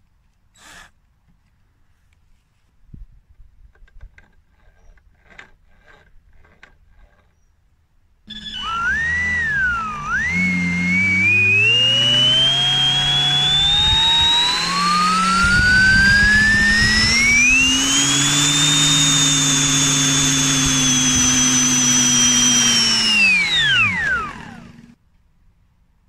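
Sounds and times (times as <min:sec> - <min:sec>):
electric fan whine: 0:08.3 - 0:25.0.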